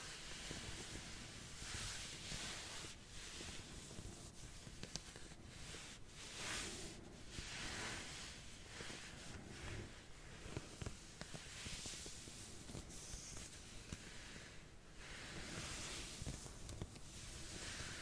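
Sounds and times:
slow scratching strokes: 0.0 - 18.0.

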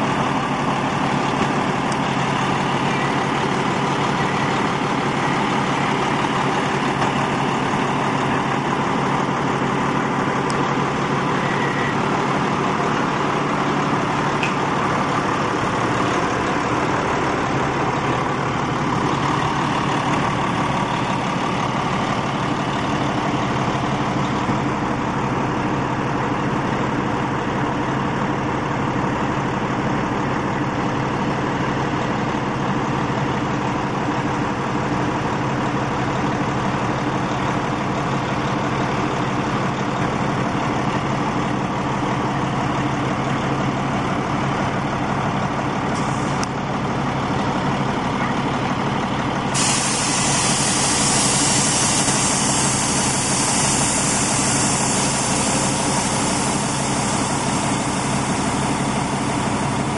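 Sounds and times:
diesel engine idling: 0.0 - 59.9
steady hiss: 49.6 - 59.5.

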